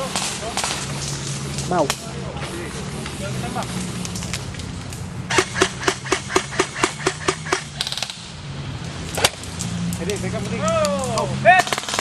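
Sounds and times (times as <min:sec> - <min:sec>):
airsoft gun shots: 0:05.3 - 0:08.3, 0:11.6 - 0:12.0.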